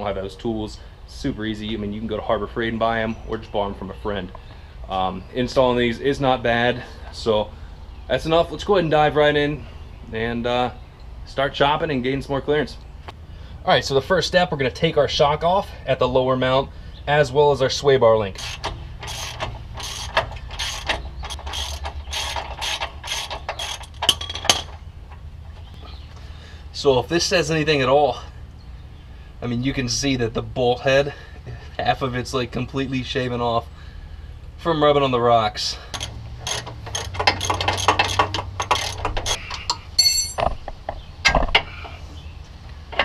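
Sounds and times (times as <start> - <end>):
wrench clicking: 18.4 - 24.7, 35.9 - 40.4
sharp metallic clinks: 35.9 - 40.6
ringing metal clink: 39.7 - 40.5.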